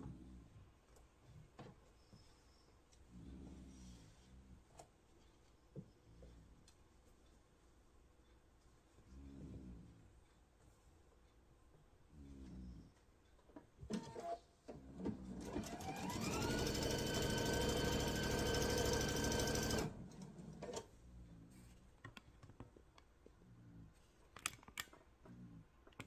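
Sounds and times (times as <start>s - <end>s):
sewing machine stitching: 15.0s - 20.9s.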